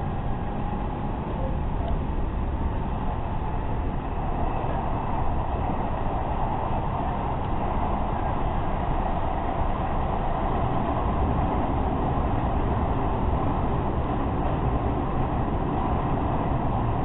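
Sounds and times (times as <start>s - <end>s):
train running noise inside car: 0.0s - 17.0s.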